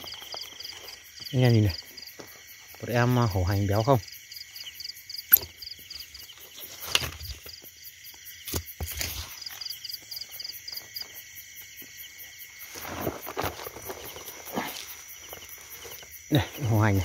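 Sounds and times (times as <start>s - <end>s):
footsteps crunching through grass: 0.0s - 2.8s, 11.7s - 16.2s
insects and frogs calling: 0.0s - 17.0s.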